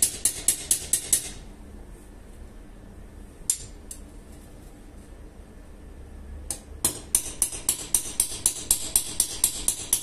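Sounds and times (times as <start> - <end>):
low steady hum: 0.0 - 10.0
hammer striking steel blade: 6.8 - 10.0.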